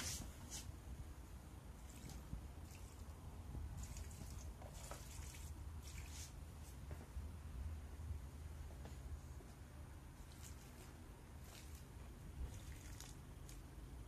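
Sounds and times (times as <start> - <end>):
water trickling onto soil: 3.8 - 6.4, 10.2 - 14.0.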